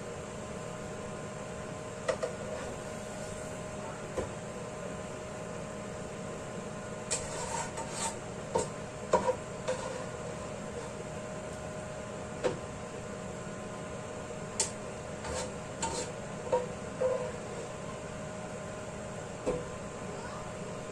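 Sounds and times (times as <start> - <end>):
range hood fan hum: 0.0 - 20.9
metal spatula scraping wok: 7.1 - 8.2, 15.2 - 17.3.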